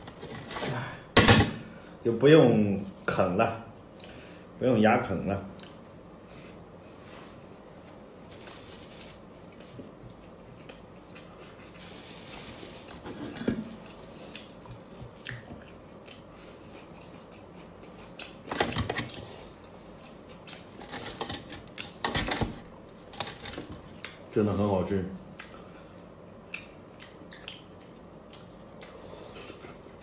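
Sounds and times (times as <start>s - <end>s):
person chewing: 9.5s - 13.0s, 13.8s - 18.5s, 25.3s - 30.0s.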